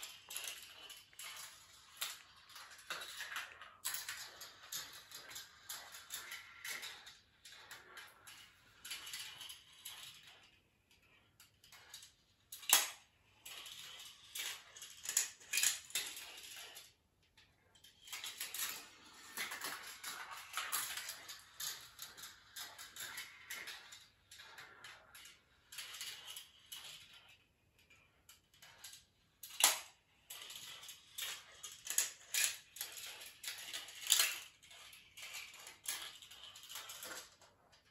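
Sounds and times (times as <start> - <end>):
marbles clicking against pieces: 0.0 - 16.9, 18.0 - 27.2
marbles rolling on plastic rails: 0.0 - 37.9.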